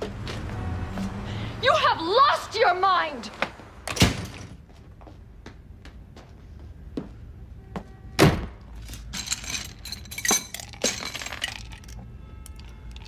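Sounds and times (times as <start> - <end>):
glassware clinking: 9.2 - 12.0
drink pouring: 10.6 - 12.0.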